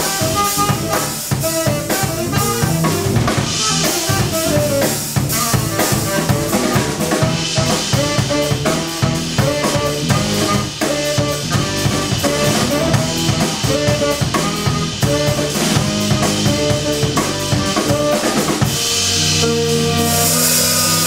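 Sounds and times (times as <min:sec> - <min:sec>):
drum kit played loudly: 0:00.0 - 0:21.0
electric bass notes: 0:00.0 - 0:21.0.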